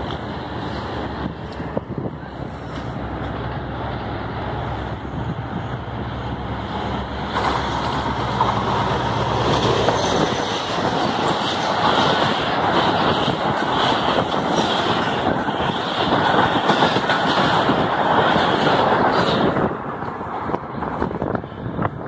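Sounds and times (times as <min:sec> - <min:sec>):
diesel engine drone: 0:00.0 - 0:16.7
train coaches running past: 0:00.0 - 0:22.0.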